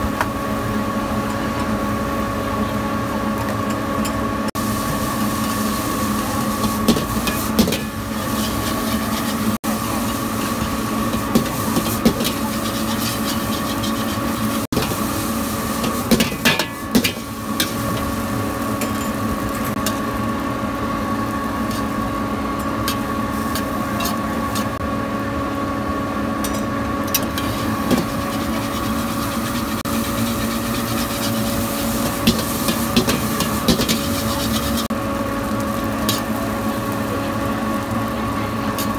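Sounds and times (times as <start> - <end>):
metal spatula scraping a wok: 6.6 - 10.5, 11.4 - 14.7, 27.3 - 34.9.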